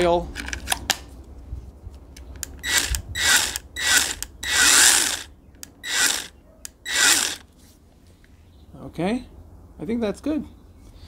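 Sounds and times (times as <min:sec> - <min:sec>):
mini chainsaw bursts: 0:02.6 - 0:07.4.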